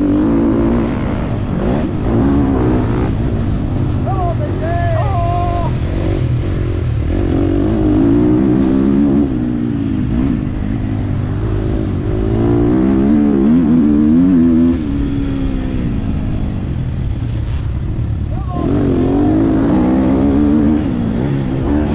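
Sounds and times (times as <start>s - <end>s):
motocross engine revving: 0.0s - 21.9s.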